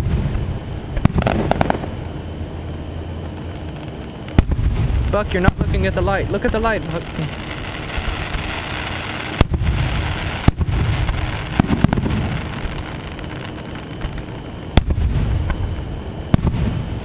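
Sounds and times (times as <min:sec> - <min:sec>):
fireworks bangs: 0:00.0 - 0:02.2, 0:03.3 - 0:17.0
low rolling rumble: 0:00.0 - 0:17.0.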